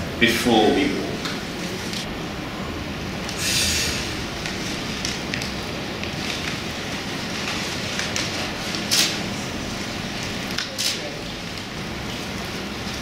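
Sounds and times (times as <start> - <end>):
paper rustling and crinkling: 4.4 - 13.0.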